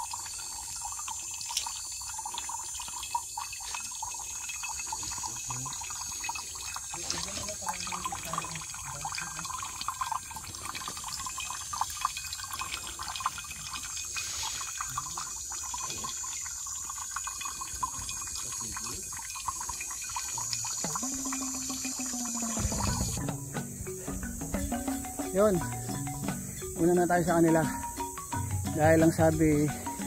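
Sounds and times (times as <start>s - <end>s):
water dripping into metal bottle: 0.0s - 30.0s.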